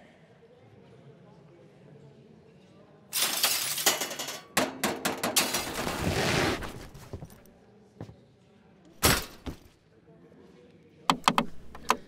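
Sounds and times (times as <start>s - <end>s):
metal tableware clattering: 3.2s - 6.1s.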